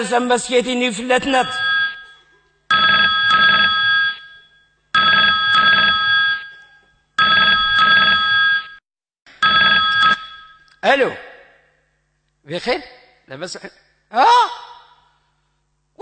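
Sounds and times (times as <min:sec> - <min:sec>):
telephone ringing: 0:01.4 - 0:08.8, 0:09.4 - 0:10.7.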